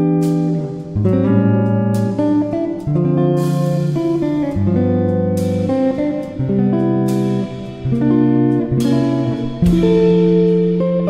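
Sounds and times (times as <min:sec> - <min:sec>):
guitar background music: 0:00.0 - 0:11.0
cymbal splash: 0:07.1 - 0:11.0.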